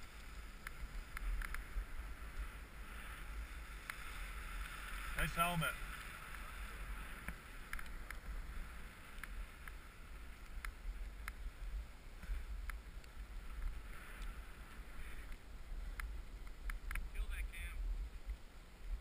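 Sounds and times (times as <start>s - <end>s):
faint clicks: 0.0s - 11.6s, 12.2s - 17.6s
snow hissing under a board: 0.0s - 12.6s
wind rumble on microphone: 0.0s - 19.0s.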